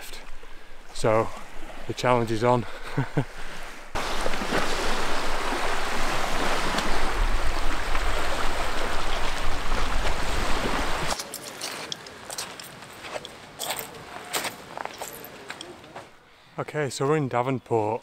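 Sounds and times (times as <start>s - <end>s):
wind: 0.0s - 18.0s
sea washing on beach: 3.3s - 15.4s.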